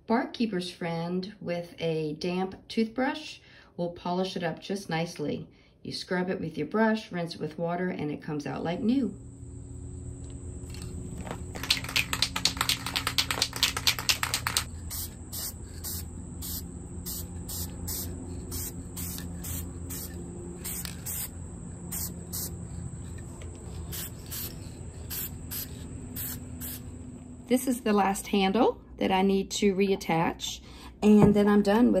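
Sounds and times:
high insect drone: 9.0s - 27.4s
spray can ball rattling: 10.7s - 21.3s, 21.9s - 26.8s
spray paint hissing bursts: 11.6s - 26.9s.

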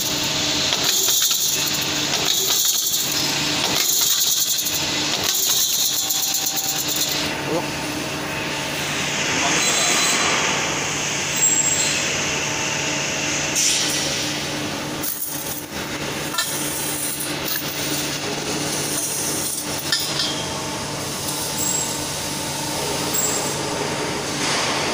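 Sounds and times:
hydraulic machine humming: 0.0s - 24.9s
steel tubes clanking and scraping: 0.7s - 7.3s.

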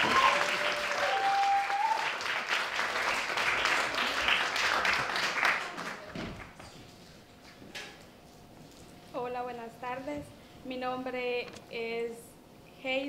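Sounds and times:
audience applauding: 0.0s - 6.6s.

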